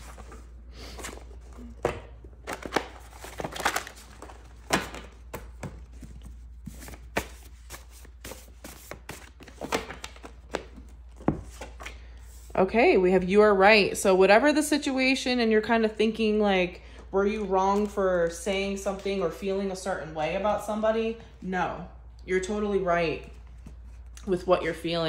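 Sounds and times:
cards being shuffled: 0:00.0 - 0:12.5.

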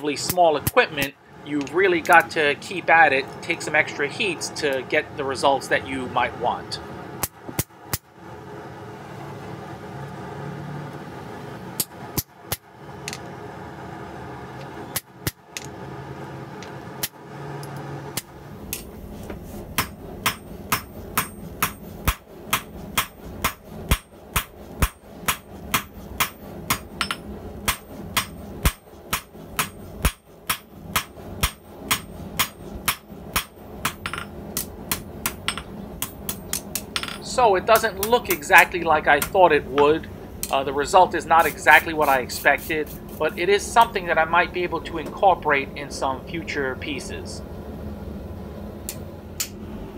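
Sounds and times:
steady hum: 0:00.0 - 0:49.9
hammer striking steel on anvil: 0:19.8 - 0:38.4.

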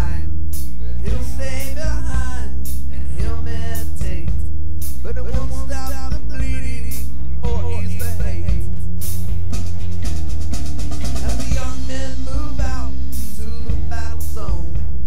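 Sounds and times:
bending guitar lead notes: 0:00.0 - 0:15.0
rock music: 0:00.0 - 0:15.0
fast drum roll: 0:07.5 - 0:15.0.

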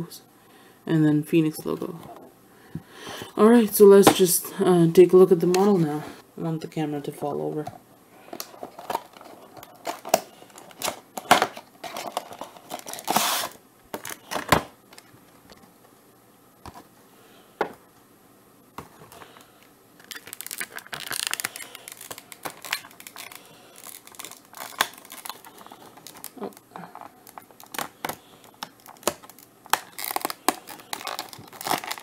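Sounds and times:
plastic crinkling: 0:08.2 - 0:15.6, 0:18.8 - 0:32.0.

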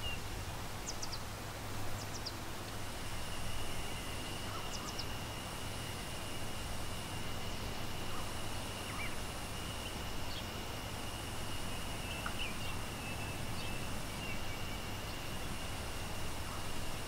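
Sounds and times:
bird chirps: 0:00.0 - 0:00.2, 0:00.8 - 0:01.2, 0:01.9 - 0:02.4, 0:03.2 - 0:05.4, 0:07.4 - 0:10.6, 0:11.6 - 0:16.7.

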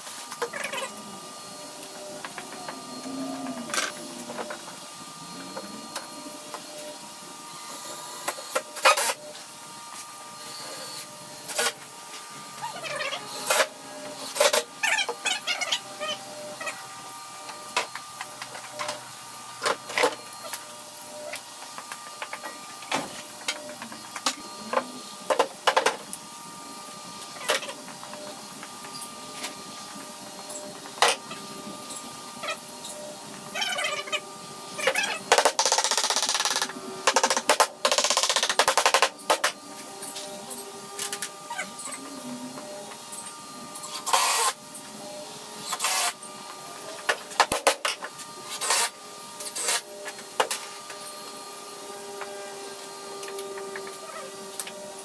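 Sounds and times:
cordless drill whirring: 0:12.5 - 0:55.0.

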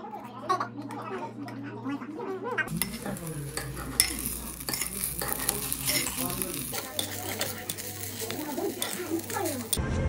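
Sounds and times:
food sizzling in a pan: 0:02.7 - 0:09.8
utensils clicking against pan: 0:02.7 - 0:09.8.

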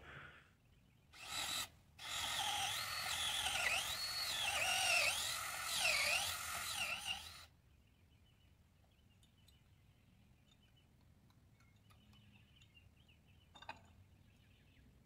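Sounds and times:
power drill drilling into wood: 0:01.2 - 0:07.5.

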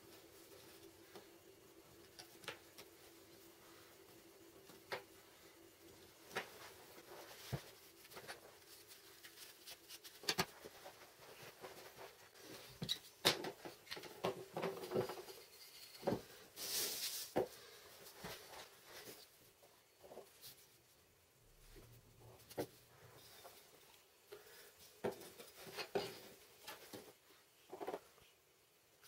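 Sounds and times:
paper rustling: 0:06.3 - 0:12.6.

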